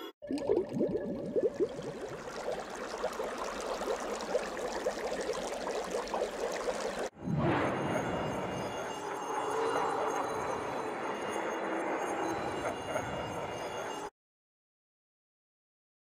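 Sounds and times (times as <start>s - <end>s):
water bubbling and gurgling: 0.2s - 7.1s.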